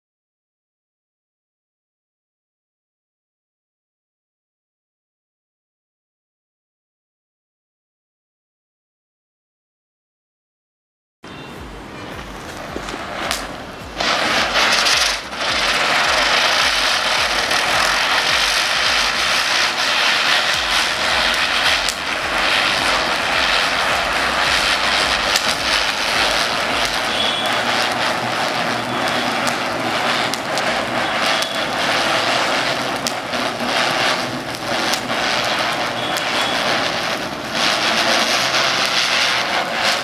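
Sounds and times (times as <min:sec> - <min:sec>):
ground spinner firework hissing: 0:11.3 - 0:40.0.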